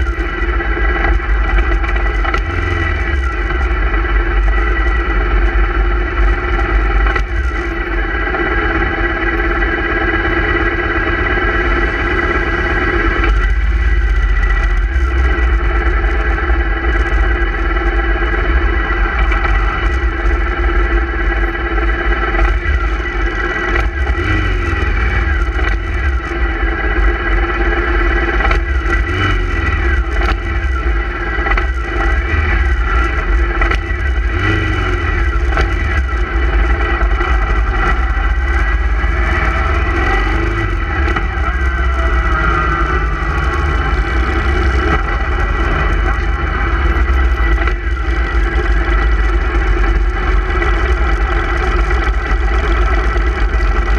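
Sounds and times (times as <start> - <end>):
vehicle engine drone: 0.0 - 53.9
motorcycles passing by: 36.8 - 48.8.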